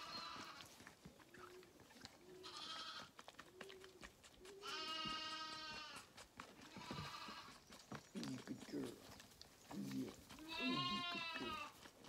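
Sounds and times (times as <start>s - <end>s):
lamb bleating: 0.0s - 0.8s, 2.4s - 3.1s, 4.6s - 7.6s, 10.3s - 11.8s.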